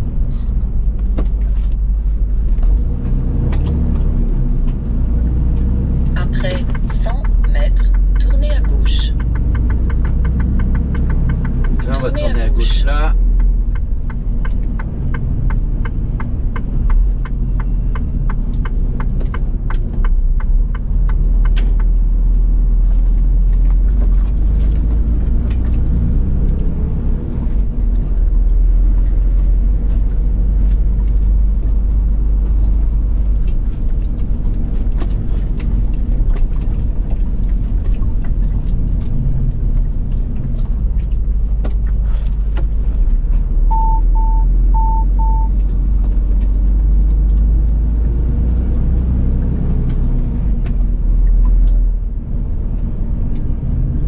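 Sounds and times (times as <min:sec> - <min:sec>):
lorry engine rumbling: 0:00.0 - 0:54.0
short beep: 0:43.7 - 0:45.5.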